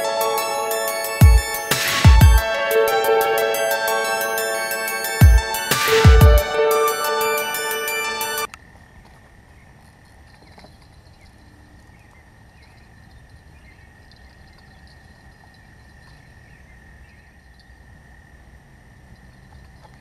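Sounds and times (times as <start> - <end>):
high-pitched drone: 0.0 - 8.5.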